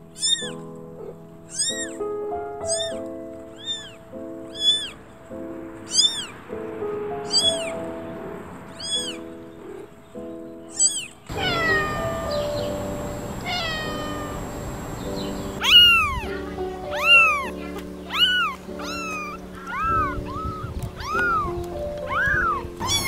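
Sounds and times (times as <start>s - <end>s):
background music sustained tones: 0.0s - 23.0s
kittens mewing: 0.1s - 2.0s, 2.6s - 3.0s, 3.6s - 5.0s, 5.9s - 6.4s, 7.2s - 7.8s, 8.7s - 9.9s, 10.7s - 23.0s.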